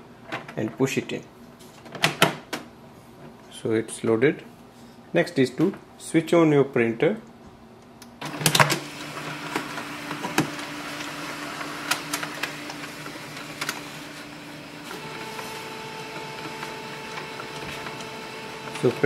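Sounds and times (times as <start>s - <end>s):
printer motors humming: 8.2s - 19.0s
printer clicks: 11.6s - 14.2s, 14.9s - 19.0s.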